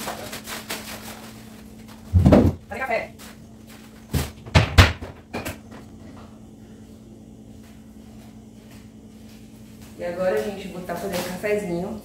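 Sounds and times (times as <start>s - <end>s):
faint steady hum: 0.0s - 12.0s
cabinet door knocks: 2.2s - 2.6s, 4.1s - 5.6s.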